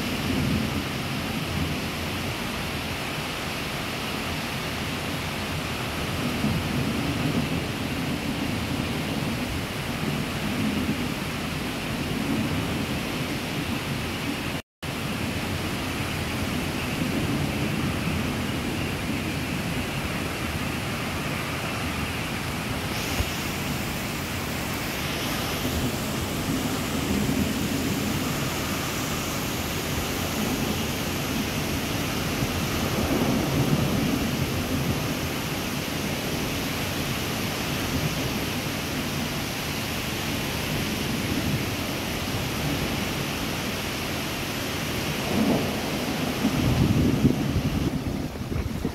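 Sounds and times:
heavy rain hissing: 0:00.0 - 0:48.9
thunder rumbling: 0:15.2 - 0:39.4, 0:40.5 - 0:48.9.

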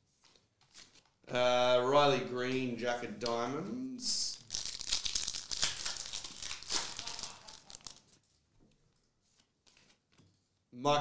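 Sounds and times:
foil wrapper tearing and crinkling: 0:04.3 - 0:08.2.

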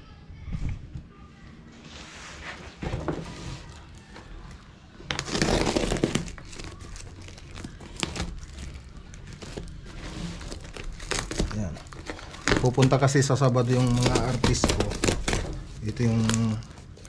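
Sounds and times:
packaging crinkling and tearing: 0:05.0 - 0:17.0.

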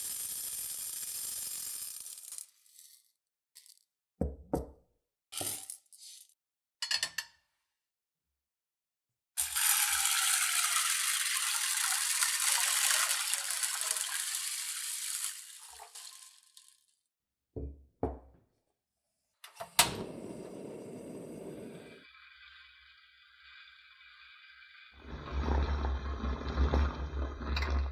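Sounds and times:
water pouring into pot: 0:09.4 - 0:16.9, 0:22.0 - 0:27.9
dried beans rattling in pot: 0:09.6 - 0:16.8
knocks: 0:17.6 - 0:18.4
gas flame hissing: 0:19.7 - 0:25.0.

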